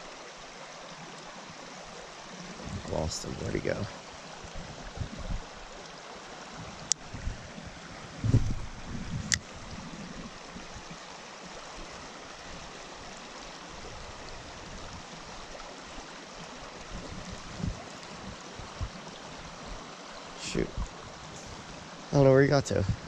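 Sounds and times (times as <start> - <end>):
stream water over rocks: 0.0 - 23.0
soft low bumps: 8.2 - 9.4, 17.0 - 19.0.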